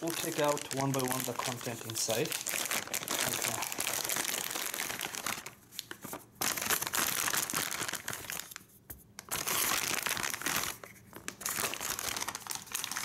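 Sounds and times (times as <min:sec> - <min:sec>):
plastic pouch crinkling: 0:00.0 - 0:13.0.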